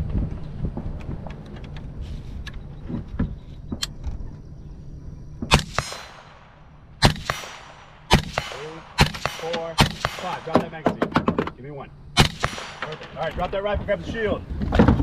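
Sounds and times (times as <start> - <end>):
echoing rifle shots: 5.4 - 11.5, 12.1 - 13.7.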